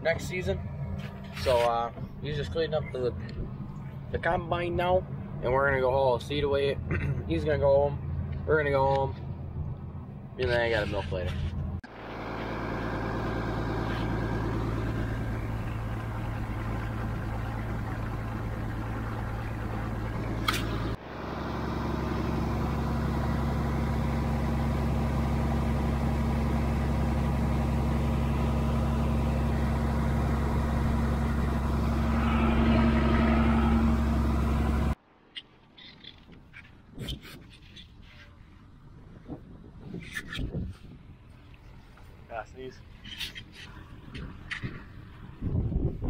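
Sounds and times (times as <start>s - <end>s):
tractor engine running: 11.0s - 35.0s.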